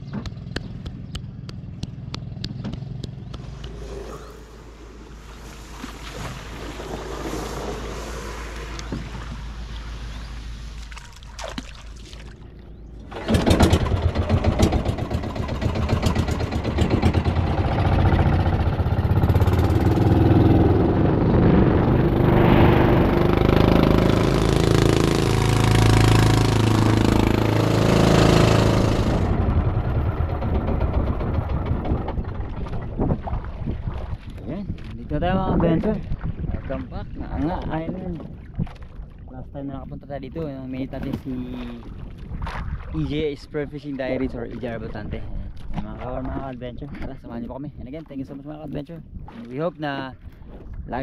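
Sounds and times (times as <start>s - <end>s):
small boat engine running: 12.0s - 34.9s.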